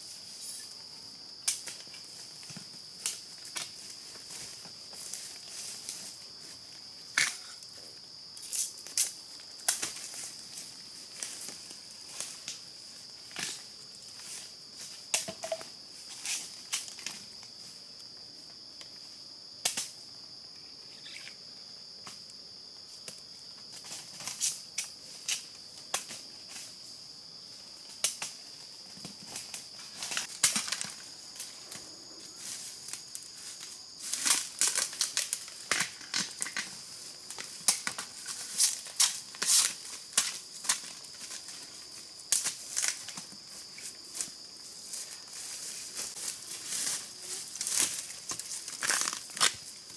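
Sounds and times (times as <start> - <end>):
high insect drone: 0.0 - 49.9
sharp snaps and cracks: 1.4 - 1.9, 8.4 - 10.3, 19.6 - 20.0, 28.0 - 28.4, 29.3 - 31.0, 34.0 - 41.4, 42.3 - 43.4, 47.6 - 49.7.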